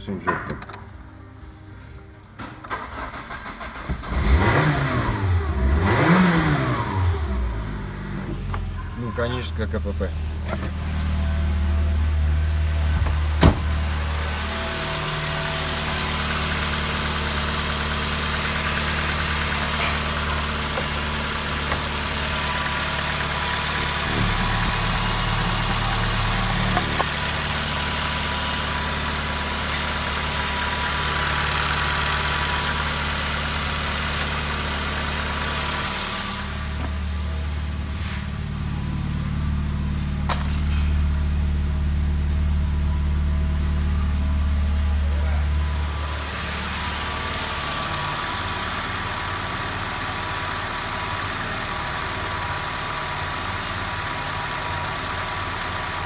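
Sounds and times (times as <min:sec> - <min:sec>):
car engine idling: 0:05.2 - 0:56.0.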